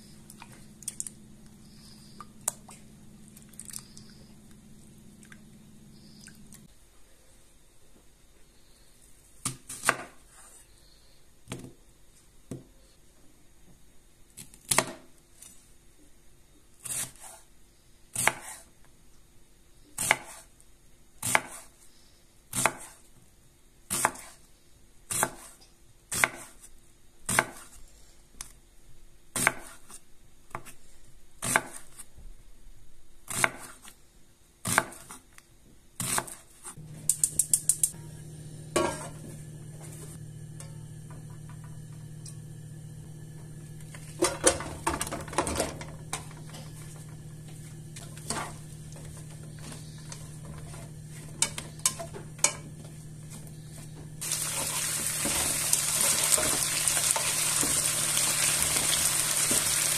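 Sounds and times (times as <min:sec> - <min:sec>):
knife chopping onion on board: 0:09.4 - 0:10.2, 0:18.2 - 0:18.7, 0:20.0 - 0:20.5, 0:21.2 - 0:21.7, 0:22.5 - 0:23.0, 0:23.9 - 0:24.4, 0:25.1 - 0:26.6, 0:27.3 - 0:27.8, 0:29.4 - 0:29.9, 0:31.4 - 0:32.0, 0:33.3 - 0:33.9, 0:34.6 - 0:35.2, 0:36.0 - 0:37.3
gas stove igniter clicking: 0:37.0 - 0:38.0.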